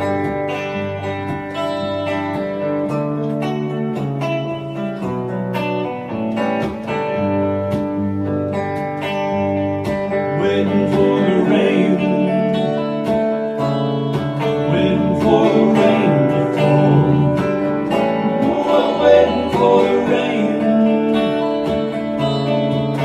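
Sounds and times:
electric guitar playing chords: 0:00.0 - 0:23.0
man singing into microphone: 0:10.3 - 0:12.7, 0:14.6 - 0:21.5.

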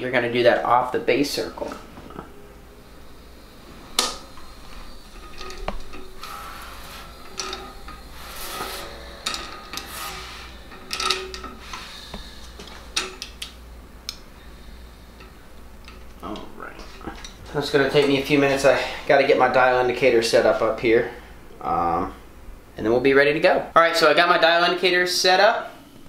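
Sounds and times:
metal tools clinking and scraping: 0:04.0 - 0:13.6.

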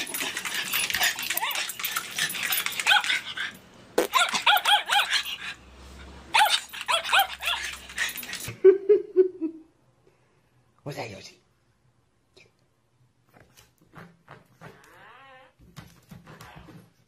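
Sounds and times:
small dog yipping and barking: 0:04.1 - 0:05.3, 0:06.3 - 0:07.7.

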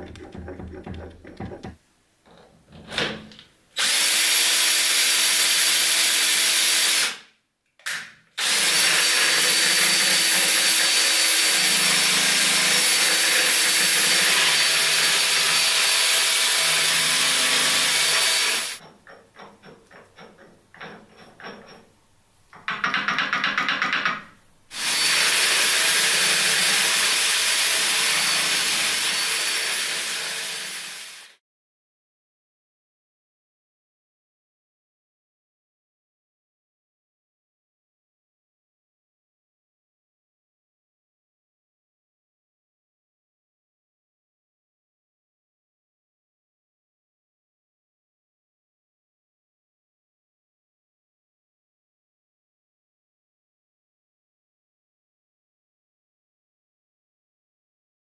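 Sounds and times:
electric drill whining: 0:08.4 - 0:18.8, 0:24.8 - 0:31.3.

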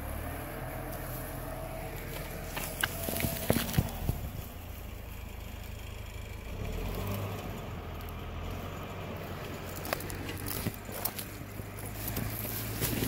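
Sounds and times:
diesel engine droning: 0:00.0 - 0:13.0
footsteps in dry brush: 0:08.0 - 0:13.0.

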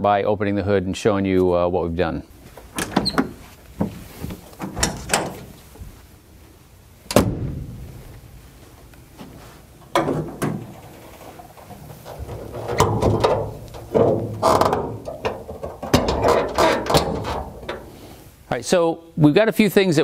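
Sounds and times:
car hood latch clicks: 0:07.1 - 0:07.8
car hood clunk: 0:07.1 - 0:08.0, 0:09.9 - 0:10.9.

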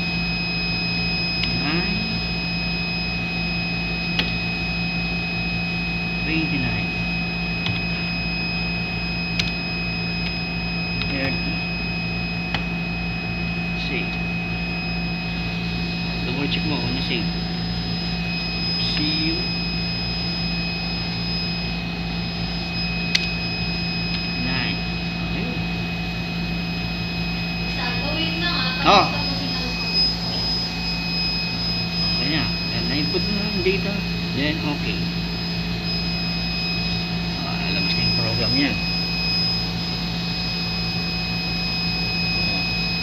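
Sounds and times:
equipment whirring hum: 0:00.0 - 0:43.0
thin high whines: 0:00.0 - 0:43.0
sharp click: 0:23.1 - 0:23.4.

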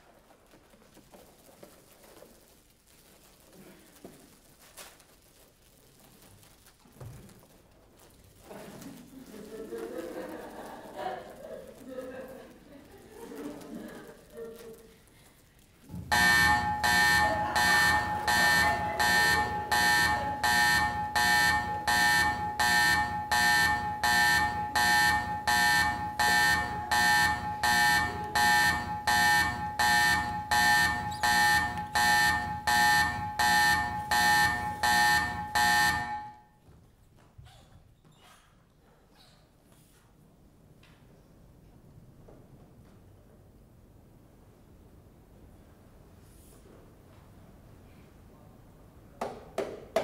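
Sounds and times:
pulsing electric alarm buzzer: 0:16.1 - 0:36.4.

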